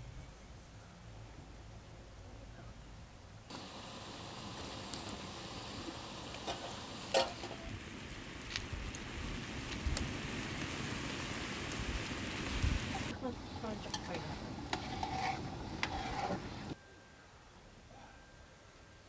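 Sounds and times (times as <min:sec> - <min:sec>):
liquid boiling in a pan: 0:03.5 - 0:16.8.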